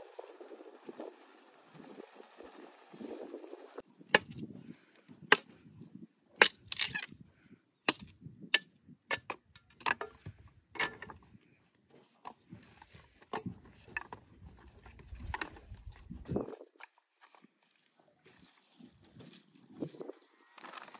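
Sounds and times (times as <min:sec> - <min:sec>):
hand axe chopping branches: 0:04.2 - 0:04.4.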